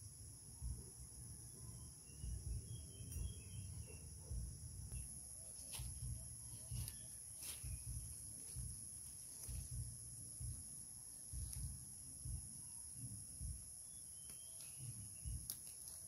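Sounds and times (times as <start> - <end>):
high-pitched insect chorus: 0.0 - 16.0
low thuds: 2.2 - 5.2, 5.8 - 13.8
sharp snaps: 14.2 - 16.0.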